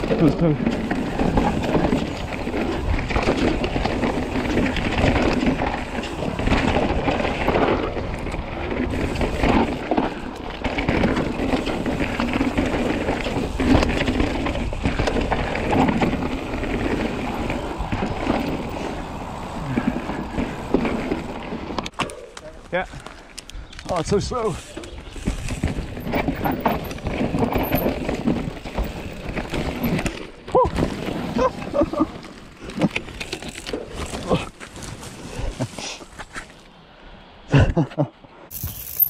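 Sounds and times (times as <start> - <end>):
bike rattling over bumps: 0.0 - 23.2, 23.9 - 35.6
tyres rolling over dirt: 0.0 - 23.2, 23.9 - 36.6
wind buffeting microphone: 0.8 - 22.0.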